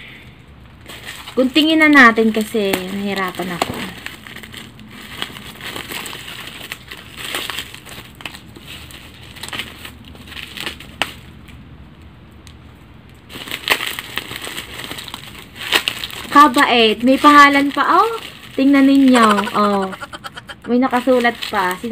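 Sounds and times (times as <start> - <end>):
plastic and tape crinkling: 0.7 - 21.9
tape tearing and peeling: 13.4 - 16.3.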